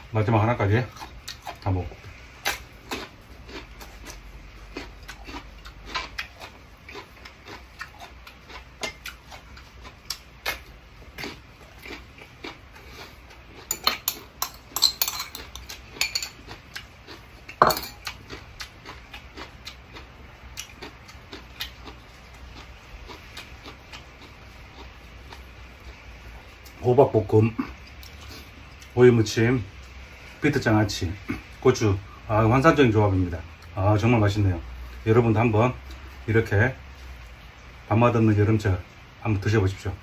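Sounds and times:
utensils clinking on ceramic bowl: 0:13.7 - 0:16.5, 0:17.6 - 0:18.1.

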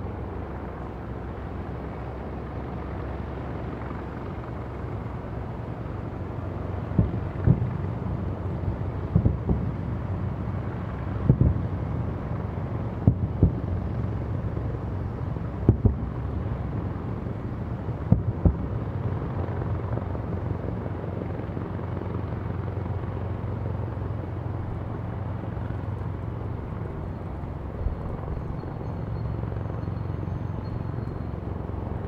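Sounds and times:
steady low drone: 0:00.0 - 0:32.0
distant fireworks booms: 0:06.9 - 0:07.8, 0:09.1 - 0:09.7, 0:11.2 - 0:11.7, 0:13.0 - 0:13.7, 0:15.6 - 0:16.2, 0:18.0 - 0:18.7.

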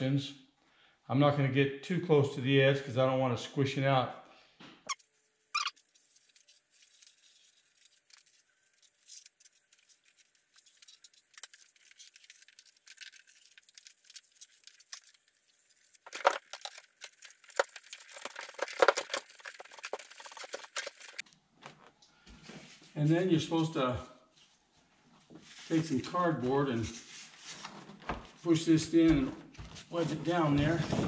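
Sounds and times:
adhesive squeezed from tube crackling: 0:04.9 - 0:21.2
plastic cover rustling: 0:05.0 - 0:23.0, 0:29.3 - 0:31.0.

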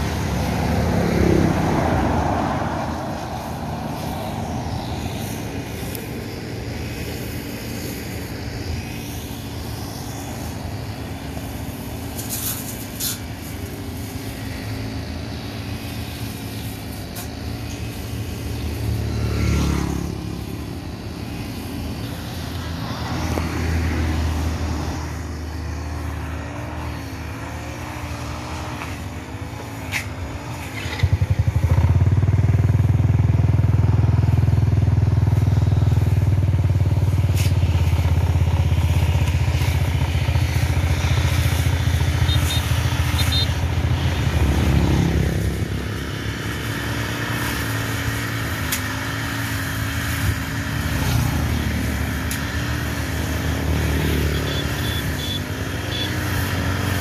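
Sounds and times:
brush cutter engine running: 0:00.0 - 0:57.0.

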